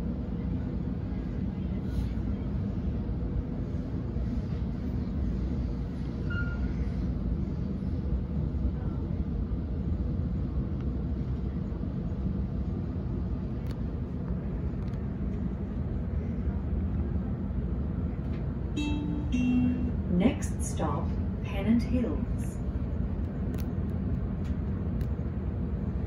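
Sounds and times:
train wheels rumbling on track: 0.0 - 26.0
faint steady hum: 9.9 - 26.0.

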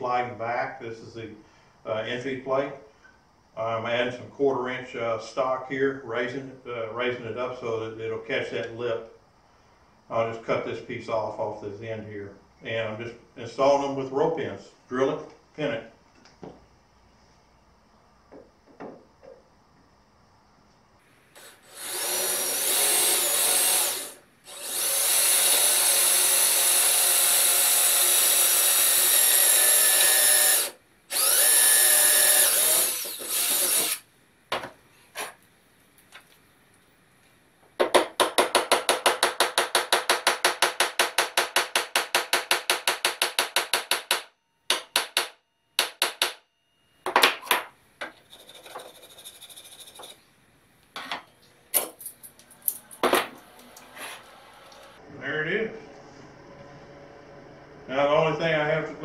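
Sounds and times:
electric drill boring: 21.4 - 34.1
hammer tapping: 37.8 - 46.4.

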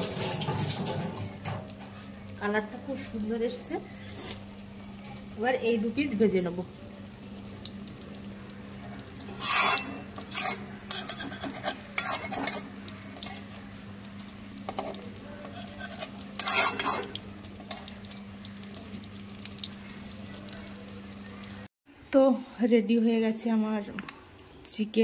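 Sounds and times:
chicken frying in a pan: 0.0 - 21.7
utensil scraping a pan: 9.3 - 13.5, 14.7 - 17.2.

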